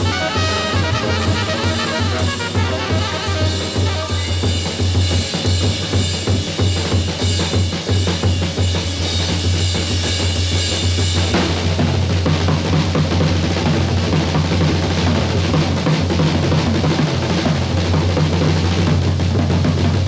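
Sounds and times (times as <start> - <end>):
cymbal wash: 0.0 - 11.2
drum rolls on snare and bass drum: 0.0 - 20.0.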